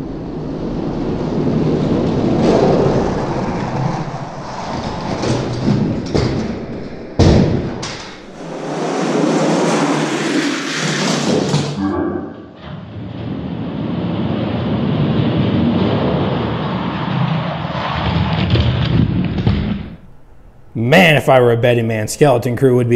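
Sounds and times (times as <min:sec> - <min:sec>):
sharp thud: 0:07.2 - 0:10.2.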